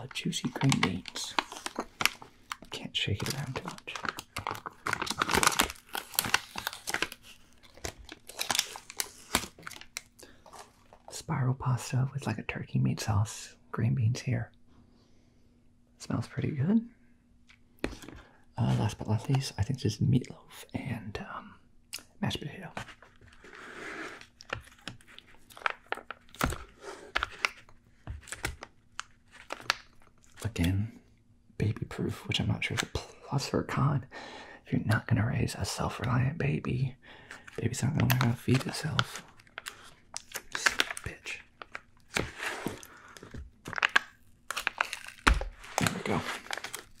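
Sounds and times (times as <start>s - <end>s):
film lid crinkling as peeled: 0.4s - 11.0s, 24.2s - 30.4s, 37.3s - 47.0s.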